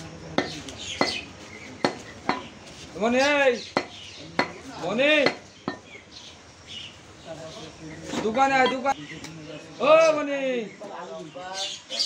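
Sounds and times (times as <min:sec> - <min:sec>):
knife chopping meat on wood: 0:00.3 - 0:02.5, 0:03.8 - 0:04.6.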